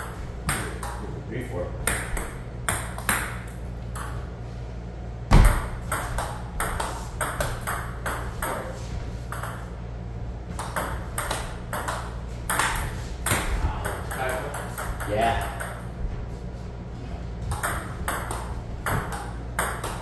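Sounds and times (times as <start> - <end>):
steady low hum: 0.0 - 20.0
heavy thump: 5.3 - 5.7.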